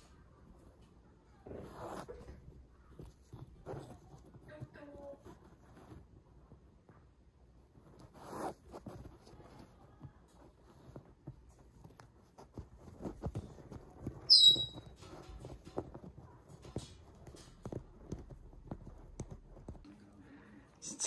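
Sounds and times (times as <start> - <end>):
high-pitched squeak: 14.2 - 15.0.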